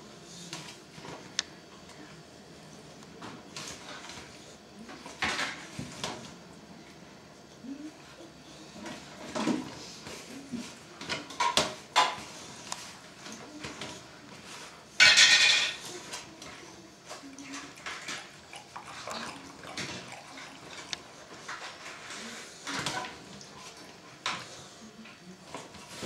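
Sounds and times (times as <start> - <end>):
dog eating from bowl: 17.2 - 24.5.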